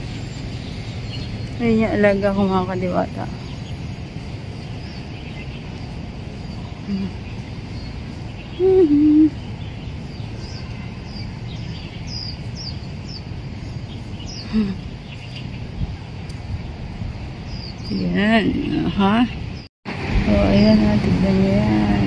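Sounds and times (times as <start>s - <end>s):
small birds chirping: 0.0s - 19.7s.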